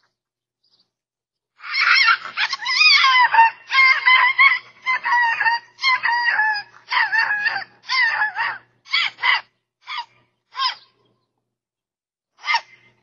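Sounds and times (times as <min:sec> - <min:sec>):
dog yelping: 0:01.6 - 0:11.0, 0:12.4 - 0:12.9.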